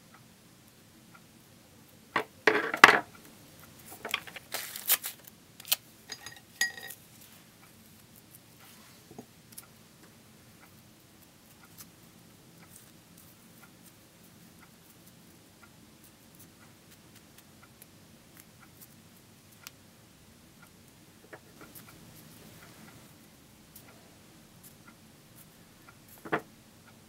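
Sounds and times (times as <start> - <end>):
low room hum: 0.0 - 27.0
paper being twisted by fingers: 4.3 - 5.8.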